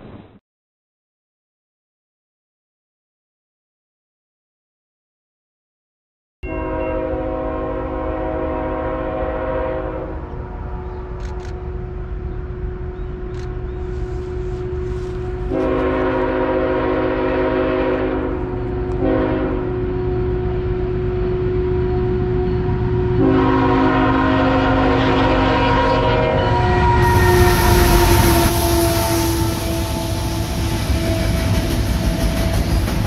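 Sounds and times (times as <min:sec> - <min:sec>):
locomotive air horn blasts: 0:06.4 - 0:13.3, 0:14.0 - 0:32.4
train rumble: 0:06.7 - 0:33.0.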